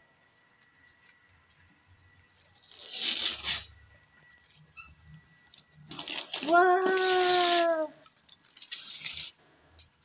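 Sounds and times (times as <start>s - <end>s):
wrapping paper tearing: 2.3s - 3.8s, 5.5s - 9.4s
paper rustling: 5.5s - 9.4s.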